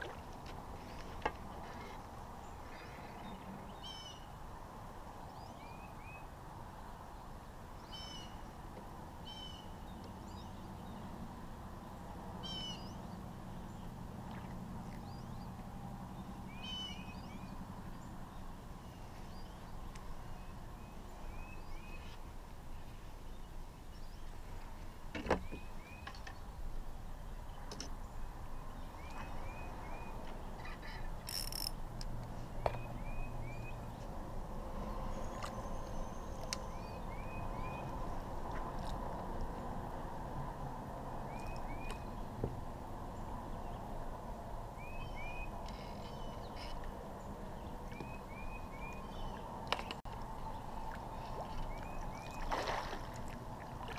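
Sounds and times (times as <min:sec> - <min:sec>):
songbird singing: 0:00.8 - 0:04.4, 0:05.1 - 0:06.3, 0:07.0 - 0:39.1, 0:41.2 - 0:53.9.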